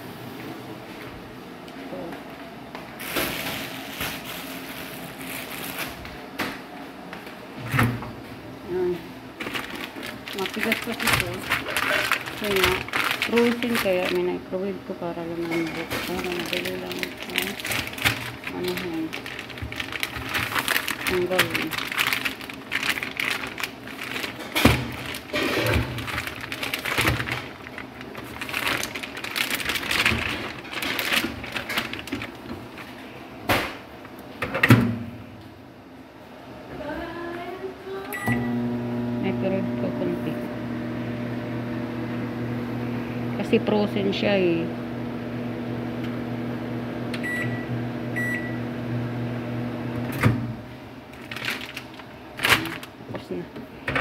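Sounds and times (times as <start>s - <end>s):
microwave oven humming: 0.0s - 54.0s
plastic wrapper crinkling: 3.0s - 6.1s, 9.4s - 14.4s, 15.4s - 33.2s, 51.1s - 53.2s.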